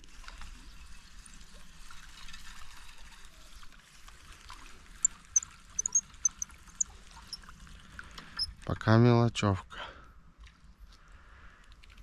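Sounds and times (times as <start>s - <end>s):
water trickling and splashing: 0.0s - 8.8s
sharp high-pitched clicks: 5.8s - 6.5s.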